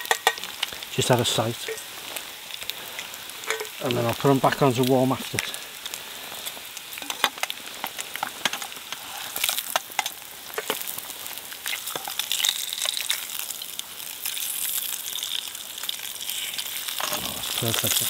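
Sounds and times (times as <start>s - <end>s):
metal tongs clicking on pan: 0.0s - 0.7s
bacon sizzling in a frying pan: 0.0s - 18.0s.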